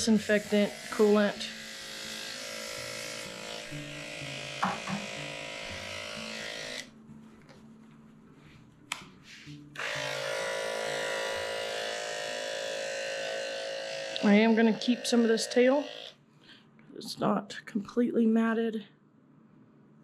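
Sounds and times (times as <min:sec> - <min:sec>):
electric clippers buzzing: 0:00.0 - 0:06.9, 0:09.8 - 0:16.2
faint background music: 0:00.0 - 0:20.0.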